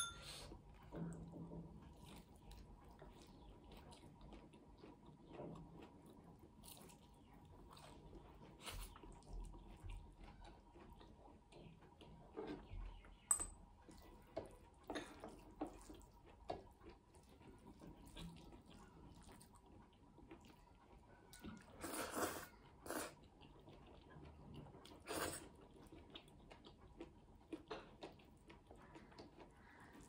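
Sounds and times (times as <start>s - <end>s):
wet chewing and lip smacks: 15.3s - 22.0s, 22.8s - 30.0s.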